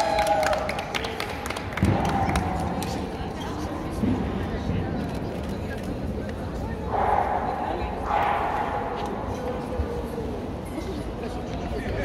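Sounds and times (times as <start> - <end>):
hand claps: 0.0 - 3.2.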